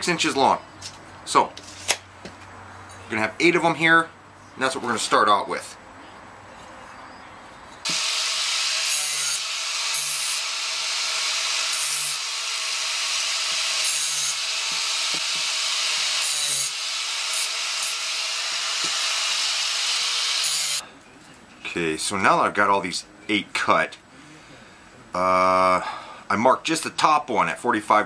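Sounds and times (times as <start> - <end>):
angle grinder cutting steel: 7.8 - 20.8.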